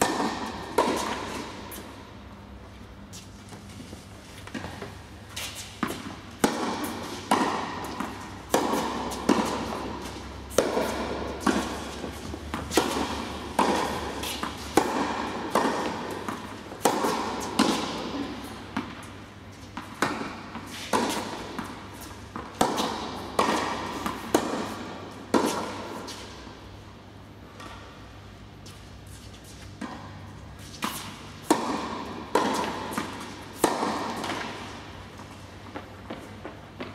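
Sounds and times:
tennis ball struck by racquets: 0:00.0 - 0:02.3, 0:04.5 - 0:19.2, 0:19.8 - 0:26.7, 0:29.4 - 0:36.9
ball bouncing on court: 0:05.8 - 0:19.1, 0:30.8 - 0:34.7.

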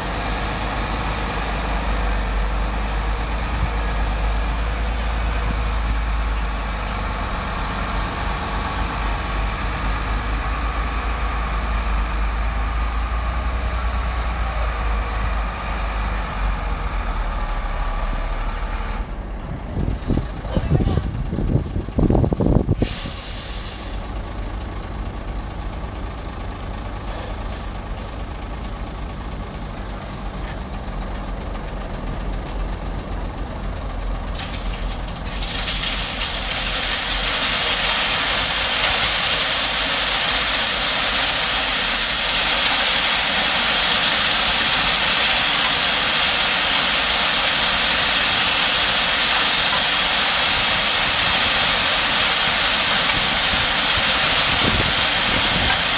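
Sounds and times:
diesel dump truck running: 0:00.0 - 0:55.9
rock sliding down a chute: 0:34.9 - 0:55.9.

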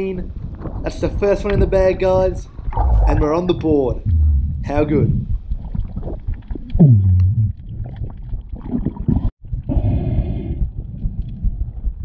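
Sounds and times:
muffled underwater sloshing: 0:00.3 - 0:09.4
short falling tone: 0:04.0 - 0:04.7.

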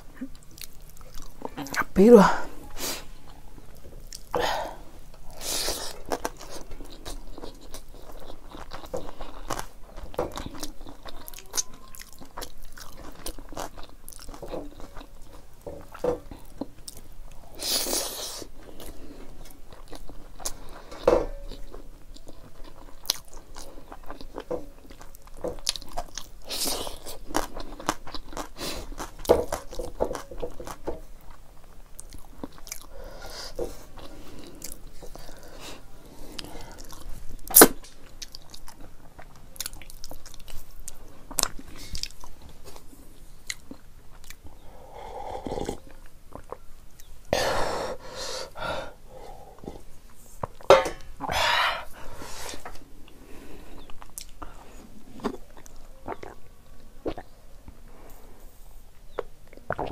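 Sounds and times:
person chewing and lip-smacking: 0:00.0 - 0:02.1, 0:03.3 - 0:04.4, 0:05.2 - 0:35.5, 0:36.3 - 0:42.8, 0:43.4 - 0:44.6, 0:45.4 - 0:47.2, 0:53.8 - 0:57.8, 0:59.1 - 0:59.9.

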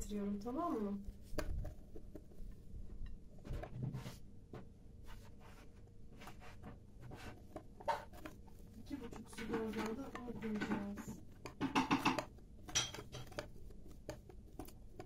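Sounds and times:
spoon stirring thick batter: 0:05.0 - 0:15.0.

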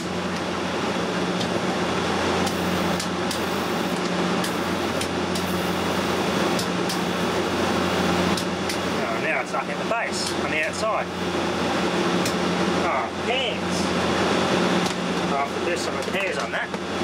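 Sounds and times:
electric arc snapping: 0:02.4 - 0:05.7
electric arc buzzing: 0:02.4 - 0:09.4.

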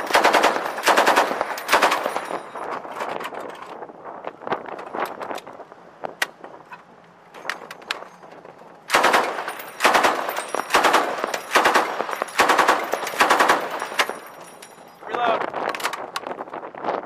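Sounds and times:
machine gun bursts: 0:00.0 - 0:02.4, 0:08.9 - 0:14.4.

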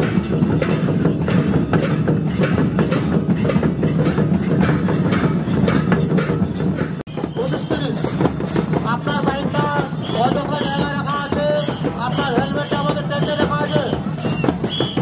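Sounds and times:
hand drums beating fast: 0:00.0 - 0:15.0.

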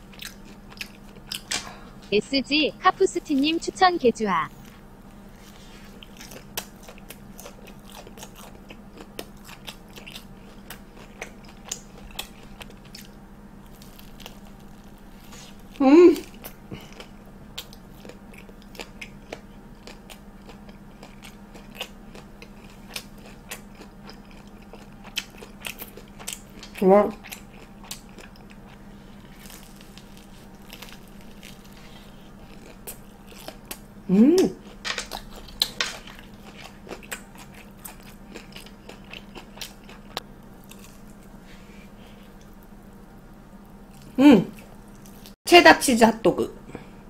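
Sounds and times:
crunchy chewing: 0:00.0 - 0:01.7, 0:04.5 - 0:45.4
faint low hum: 0:00.0 - 0:47.0.

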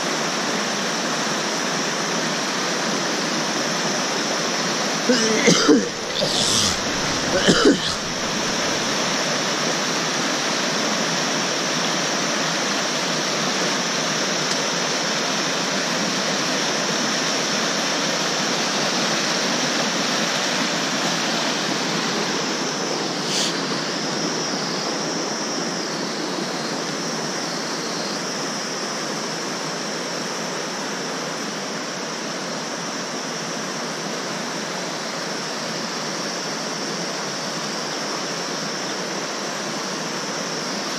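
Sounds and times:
cough-like vocal sound: 0:05.1 - 0:09.0
river rapids rushing: 0:05.1 - 0:10.7.

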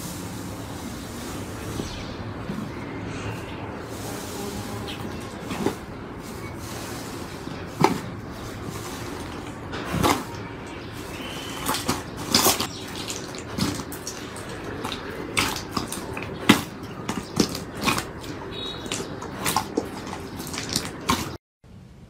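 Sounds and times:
wet slime squelching and popping: 0:07.8 - 0:21.4.

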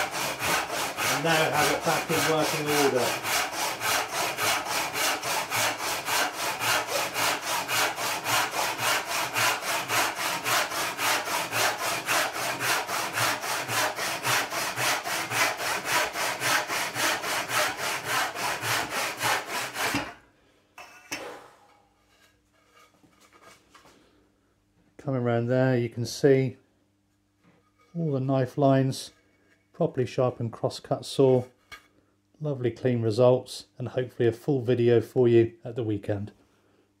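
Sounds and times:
hand saw cutting wood: 0:00.0 - 0:20.2.

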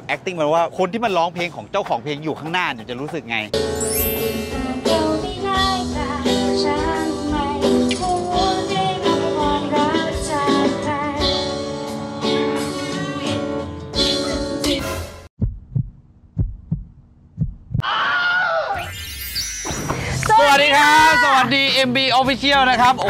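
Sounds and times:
woman singing into a microphone: 0:04.2 - 0:12.6.

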